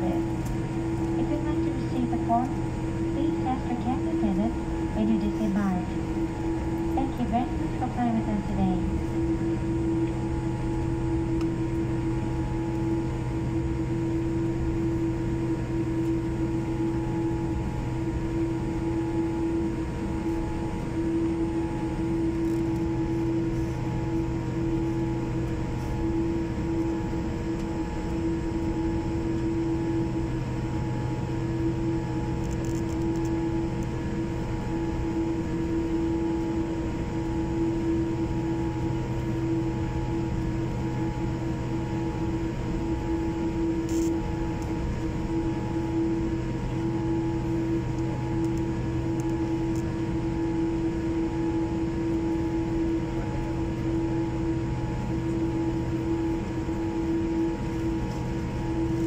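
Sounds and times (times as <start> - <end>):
airplane cabin drone: 0.0 - 59.0.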